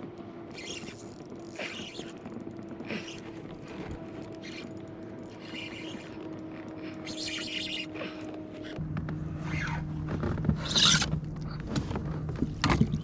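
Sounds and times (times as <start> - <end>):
fishing reel clicking: 0.5 - 3.2, 4.2 - 7.9
fishing reel whirring: 0.5 - 8.8.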